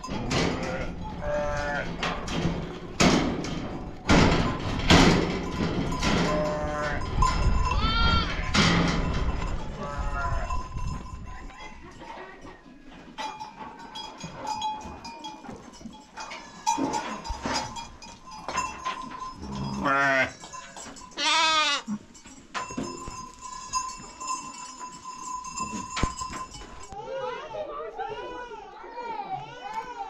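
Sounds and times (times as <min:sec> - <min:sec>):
livestock bells ringing: 0:00.0 - 0:01.9, 0:05.4 - 0:27.6
goats bleating: 0:07.7 - 0:08.5, 0:19.6 - 0:20.5, 0:21.2 - 0:22.0.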